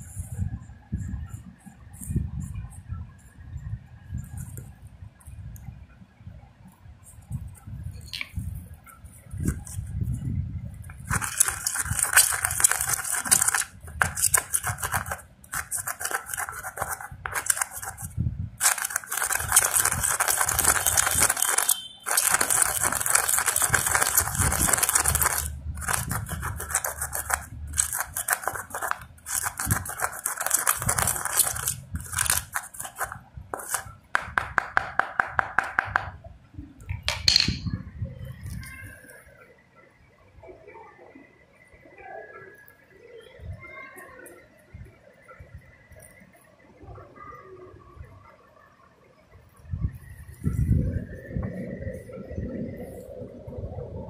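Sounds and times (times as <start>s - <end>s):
metal rod pounding seeds: 11.0s - 36.2s.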